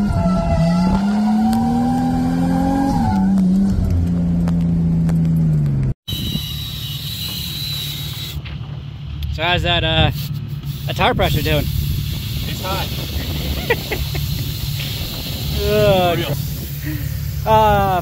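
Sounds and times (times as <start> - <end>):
car engine revving high: 0.0 - 4.9
thin high whine: 6.1 - 8.6.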